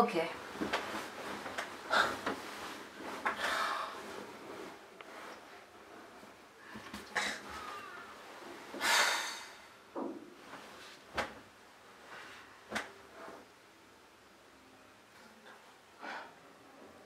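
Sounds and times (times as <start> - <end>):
bed creaking shifting: 0.4 - 9.0.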